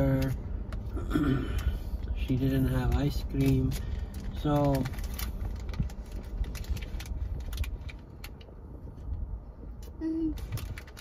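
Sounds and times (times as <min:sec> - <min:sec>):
low steady rumble: 0:00.0 - 0:11.0
foil wrapper crinkling: 0:02.9 - 0:08.5, 0:10.4 - 0:11.0.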